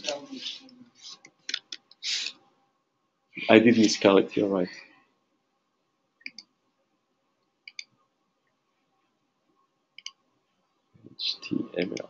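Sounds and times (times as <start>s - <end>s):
computer mouse clicks: 6.2s - 6.5s, 7.6s - 7.9s, 10.0s - 10.2s.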